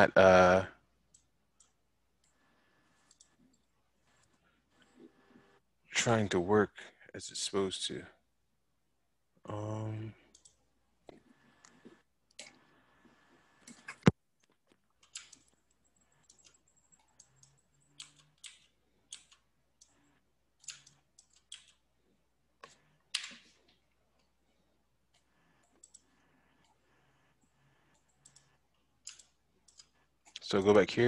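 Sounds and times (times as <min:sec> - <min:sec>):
mouse and keyboard clicks: 0:13.6 - 0:20.0, 0:20.6 - 0:21.8, 0:22.6 - 0:23.8, 0:27.9 - 0:30.4.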